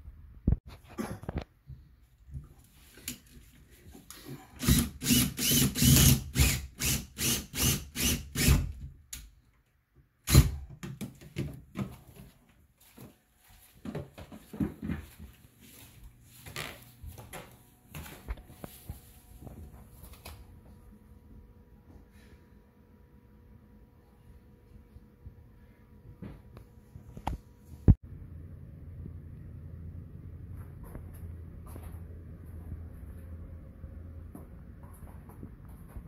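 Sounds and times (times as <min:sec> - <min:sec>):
cordless drill bursts: 0:04.6 - 0:08.7.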